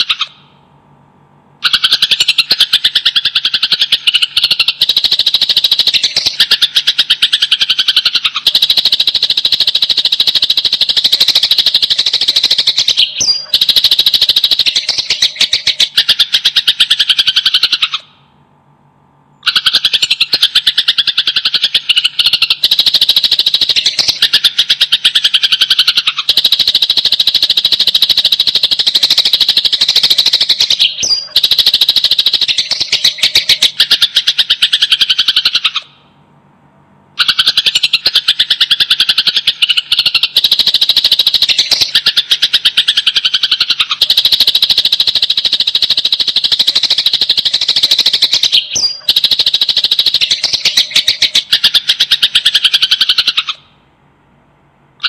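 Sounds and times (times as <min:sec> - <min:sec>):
sparrows chirping harshly: 0:01.6 - 0:18.0, 0:19.4 - 0:35.8, 0:37.2 - 0:53.6.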